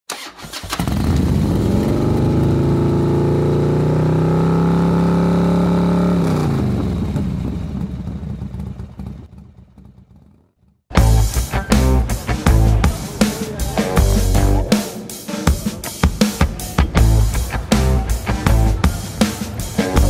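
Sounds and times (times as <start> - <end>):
motorcycle engine revving: 0.1 - 12.9, 16.9 - 20.0.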